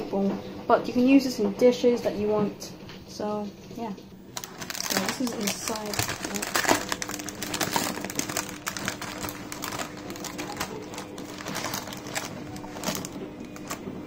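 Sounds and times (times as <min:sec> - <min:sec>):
plastic film crinkling: 0:04.3 - 0:14.0.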